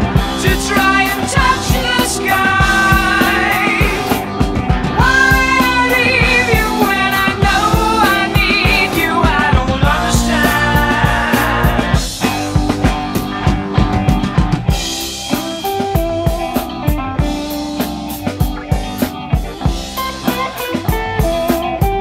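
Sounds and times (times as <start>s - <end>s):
drum kit beat: 0.0s - 22.0s.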